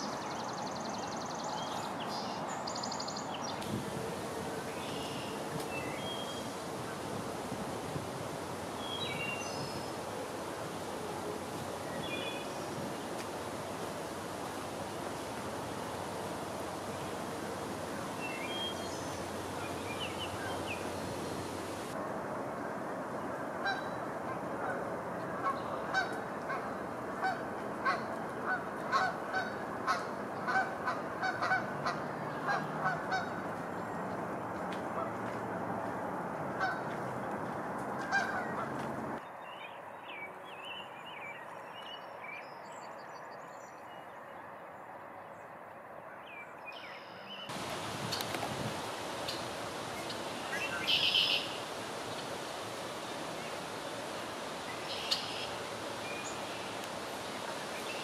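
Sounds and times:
steady outdoor hiss: 0.0 - 58.0
bird calling: 49.1 - 52.2, 54.6 - 58.0.

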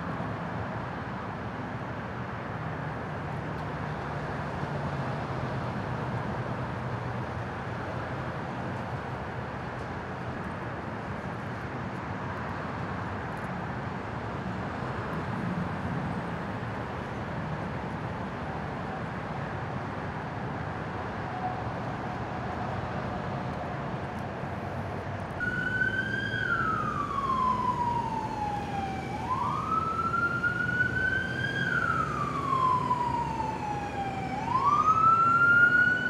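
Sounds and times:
low street noise: 0.0 - 36.0
faint distant siren: 21.1 - 24.6, 25.3 - 36.0
emergency siren wailing: 25.4 - 36.0.

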